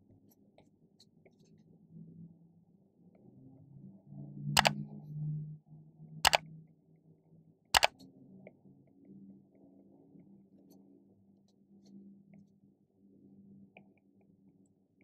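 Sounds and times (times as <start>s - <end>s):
sharp mouse clicks: 7.8s - 8.0s.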